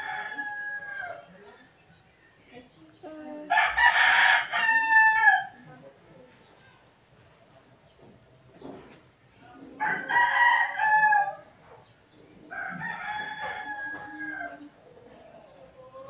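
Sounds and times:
rooster crowing: 0.0s - 1.3s, 3.5s - 5.6s, 9.8s - 11.5s, 12.5s - 14.7s.

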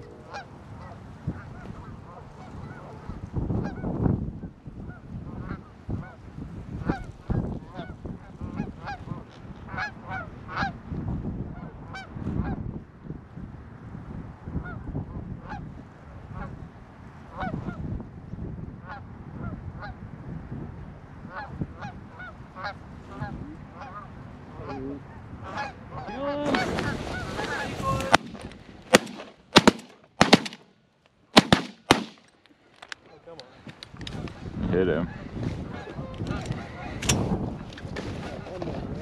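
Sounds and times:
geese honking: 0.3s - 3.9s, 21.3s - 28.4s
rustle: 25.5s - 30.2s
shotgun shots: 28.0s - 30.7s, 31.4s - 32.3s.

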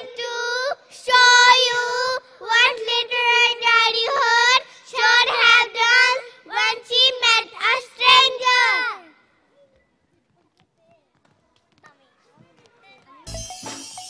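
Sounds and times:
children singing into microphone: 0.0s - 8.8s.

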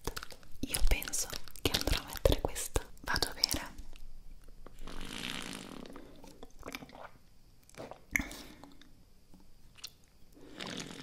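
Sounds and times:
sipping and swallowing: 4.8s - 8.9s.

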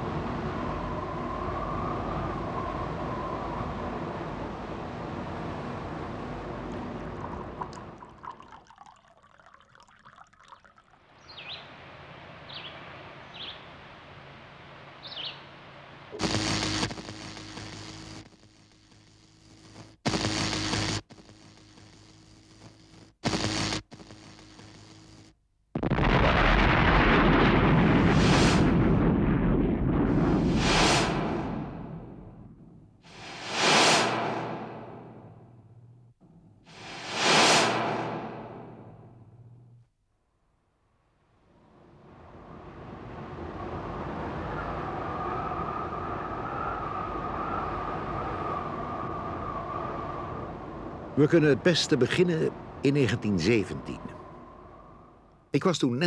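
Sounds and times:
faint hiss with low hum: 0.0s - 28.8s, 38.3s - 56.0s
low rumble: 26.2s - 39.9s
short loud burst of noise: 30.1s - 39.9s.

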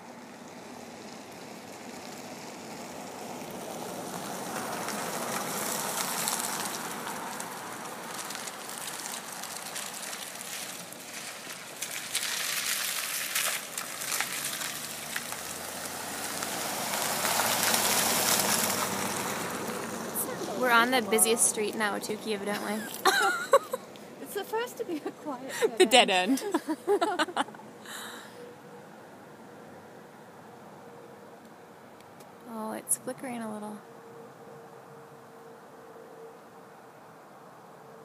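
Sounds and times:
tyre hiss on wet street: 0.0s - 20.6s.

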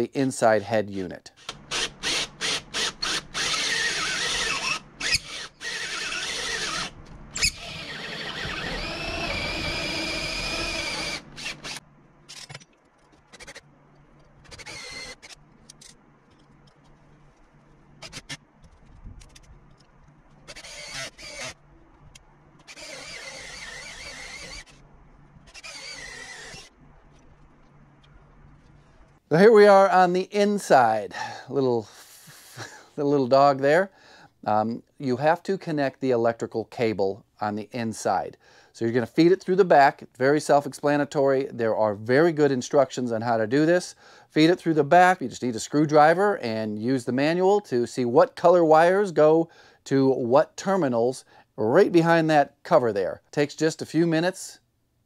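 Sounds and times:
power drill squealing: 1.4s - 12.6s, 14.4s - 15.4s, 20.5s - 21.6s, 22.6s - 24.8s, 25.4s - 26.7s.

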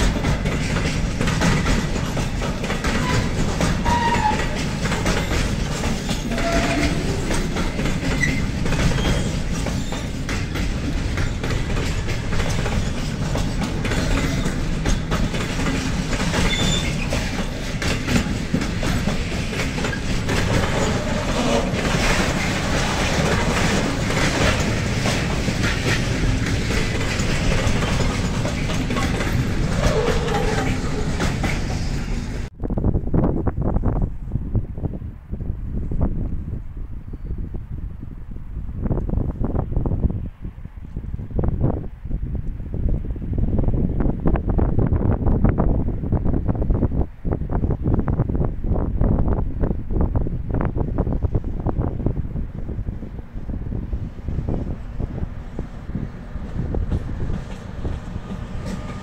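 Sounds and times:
train wheels clattering over rail joints: 0.0s - 32.5s, 51.1s - 59.0s
high wheel squeaks: 1.8s - 10.3s, 11.2s - 32.5s.

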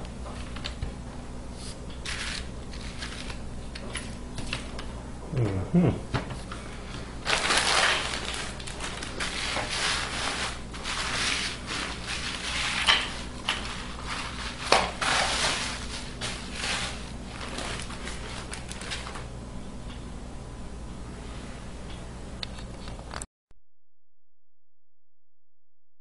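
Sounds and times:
rustling and scraping on tabletop: 7.7s - 19.1s.

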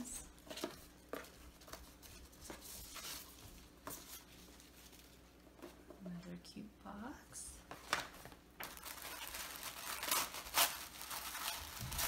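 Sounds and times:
ribbon rustling: 7.7s - 12.0s.

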